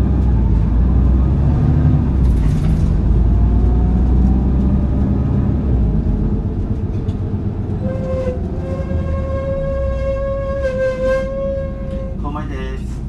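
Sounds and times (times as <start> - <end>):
diesel bus engine rumble: 0.0 - 13.0
high horn-like tone: 7.8 - 12.2.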